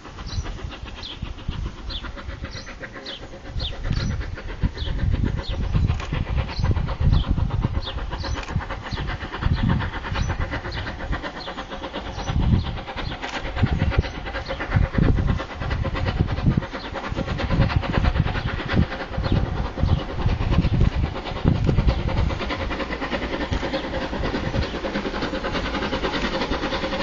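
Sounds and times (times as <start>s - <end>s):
steam locomotive rumble: 0.0s - 27.0s.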